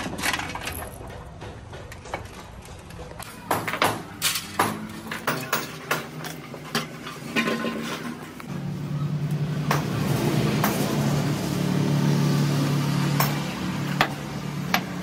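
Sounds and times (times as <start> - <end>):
metal parts clicking on workbench: 3.7 - 8.1.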